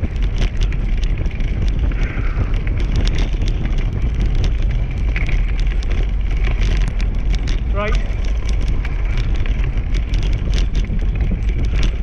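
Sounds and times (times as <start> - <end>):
wheels rumbling on dirt track: 0.0 - 12.0
wind buffeting microphone: 0.0 - 12.0
frame clicking and rattling: 2.8 - 12.0.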